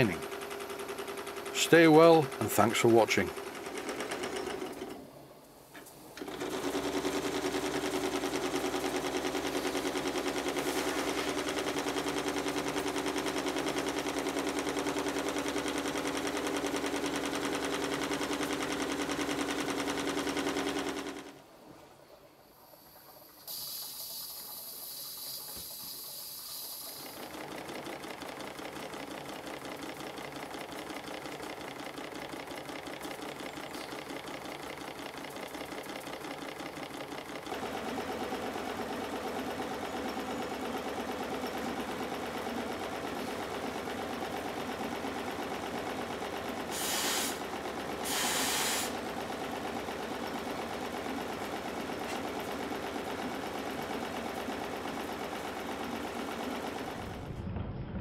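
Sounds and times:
steam hissing: 23.5s - 27.2s, 46.7s - 47.4s, 48.0s - 49.0s.

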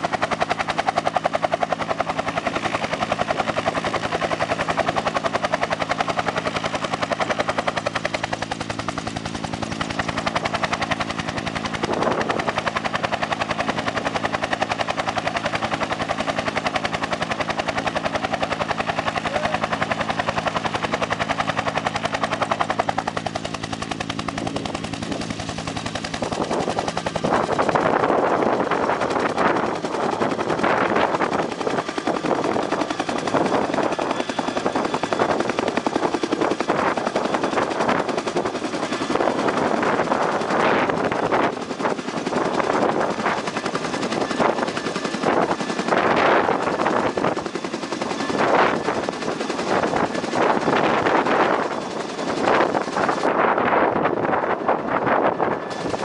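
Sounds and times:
helicopter turbine and rotor: 0.0s - 56.0s
helicopter blade slap: 0.1s - 56.0s.

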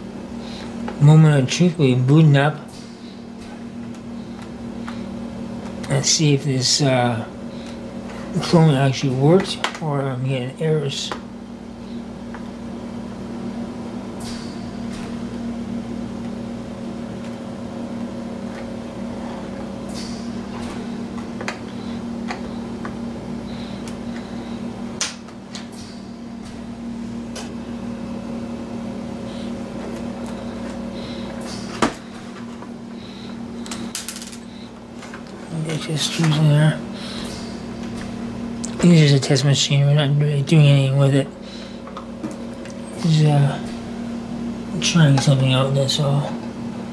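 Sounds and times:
steady low hum: 0.0s - 46.9s.

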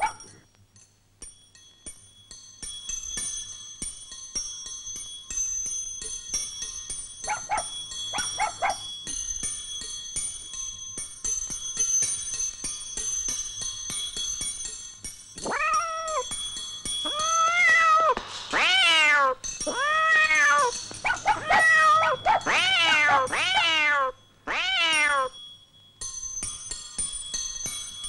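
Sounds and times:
light tinkling music: 0.0s - 28.0s
cat meowing: 15.5s - 16.2s, 17.1s - 25.4s.

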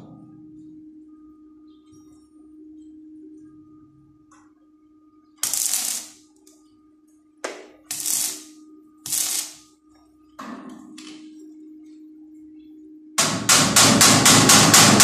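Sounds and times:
steady hum: 0.0s - 15.0s
welding arc crackle: 5.4s - 6.2s, 7.9s - 9.7s.

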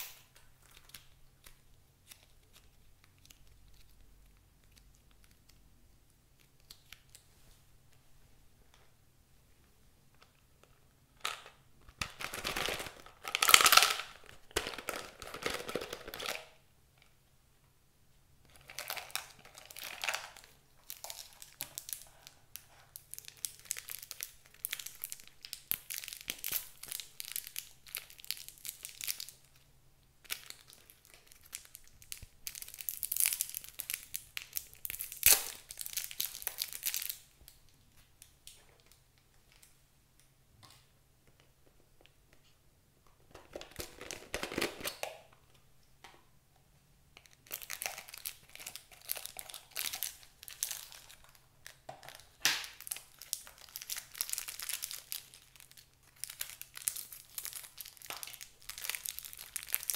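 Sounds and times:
plastic wrappers crinkling: 0.0s - 5.6s, 11.2s - 16.6s, 18.5s - 39.8s, 43.3s - 45.6s, 47.2s - 59.9s.

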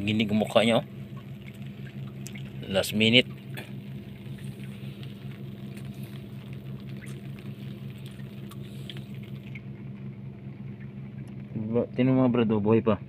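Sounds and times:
engine humming: 0.0s - 13.0s
light water patter: 0.0s - 13.0s
faint ticks: 3.5s - 10.1s.

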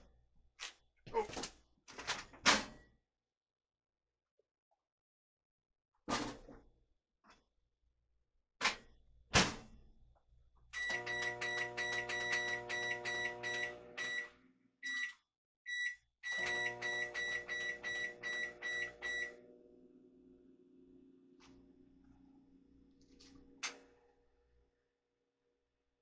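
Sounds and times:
microwave running hum: 10.8s - 14.4s, 16.4s - 24.0s.

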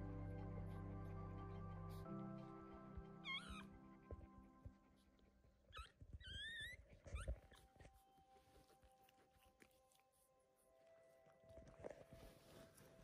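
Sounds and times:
puppy squealing: 3.2s - 3.7s, 5.7s - 7.7s.

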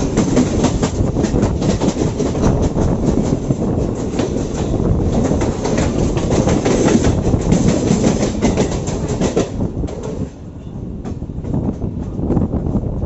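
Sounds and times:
train wheels clattering over rail joints: 0.0s - 10.4s
steady train rumble: 0.0s - 13.0s.

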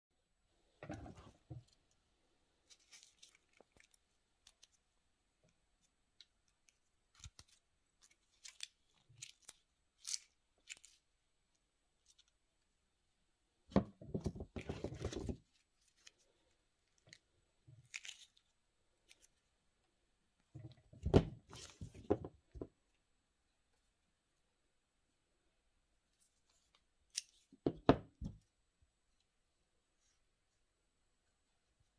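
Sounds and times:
plastic tape rustling: 2.6s - 4.8s, 17.8s - 19.4s.

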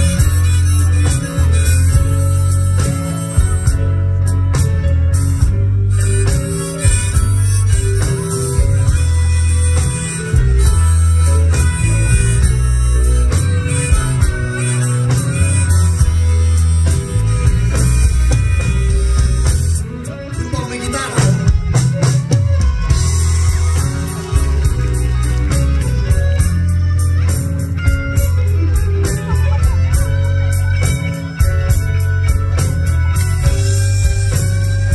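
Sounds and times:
blues rock band playing: 0.0s - 34.9s
harmonica solo: 0.0s - 34.9s.

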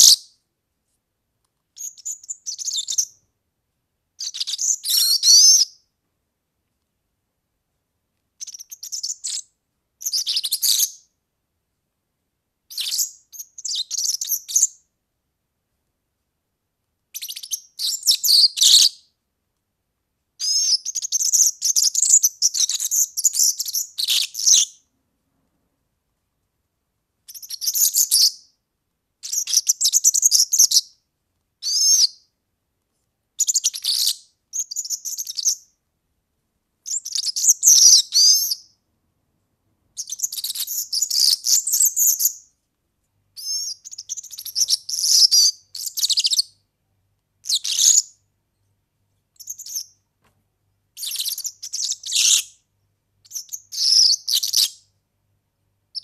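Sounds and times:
bird twittering song: 1.8s - 3.2s, 4.2s - 5.8s, 8.4s - 11.1s, 12.7s - 14.8s, 17.2s - 19.1s, 20.4s - 24.8s, 27.3s - 28.5s, 29.2s - 31.0s, 31.6s - 32.3s, 33.4s - 35.7s, 36.9s - 38.7s, 40.0s - 42.5s, 43.4s - 46.6s, 47.4s - 48.2s, 49.4s - 50.0s, 51.0s - 52.6s, 53.3s - 54.9s.

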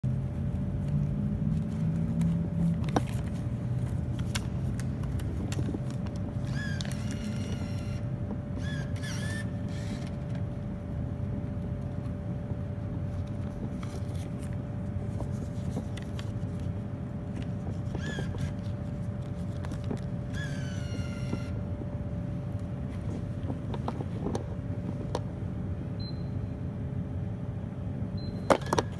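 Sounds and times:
vending machine humming: 0.0s - 28.9s
bill acceptor whirring squeals: 6.4s - 10.2s, 17.7s - 19.0s, 20.2s - 21.7s.

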